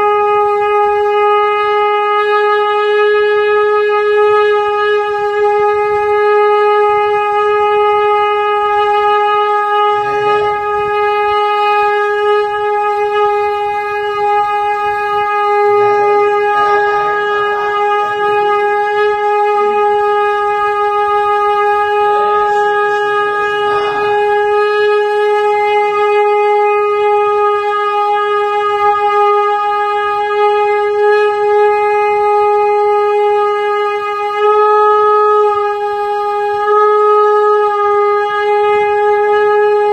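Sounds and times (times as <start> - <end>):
conch shell blown in long note: 0.0 - 39.9.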